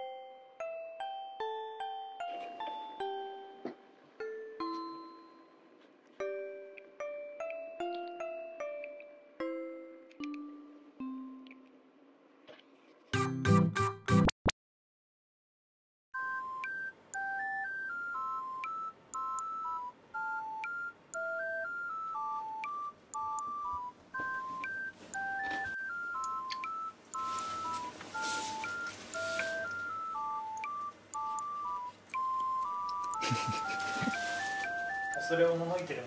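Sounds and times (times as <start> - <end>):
electronic beep melody: 16.2 - 35.7.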